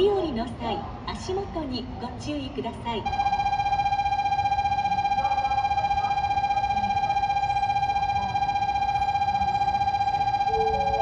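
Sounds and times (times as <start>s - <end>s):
departure bell ringing: 10.4s - 11.0s.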